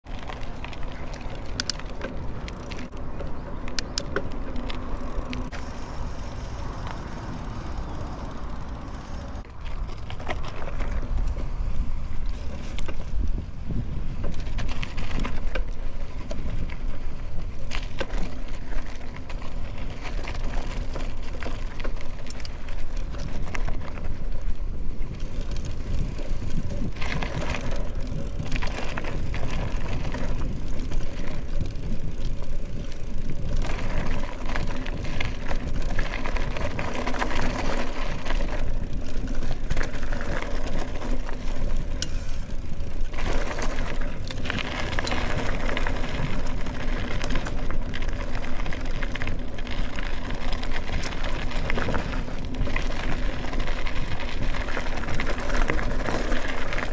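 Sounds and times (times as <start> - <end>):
bike clicks and rattles: 0.0 - 56.9
tyres rumbling: 0.0 - 56.9
wind on microphone: 9.2 - 17.8, 22.8 - 47.8.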